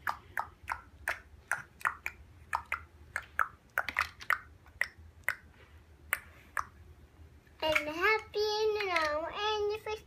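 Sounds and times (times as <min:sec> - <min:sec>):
plastic blocks clacking: 0:07.6 - 0:09.4.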